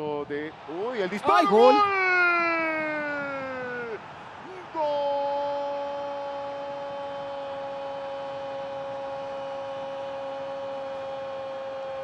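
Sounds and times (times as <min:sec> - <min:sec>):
commentator shouting goal call: 0:01.1 - 0:03.6.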